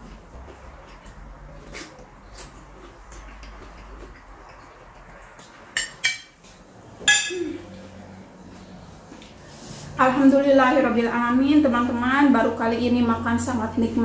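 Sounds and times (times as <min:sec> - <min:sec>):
cutlery clinking against plates: 0:05.7 - 0:06.4, 0:07.0 - 0:07.5.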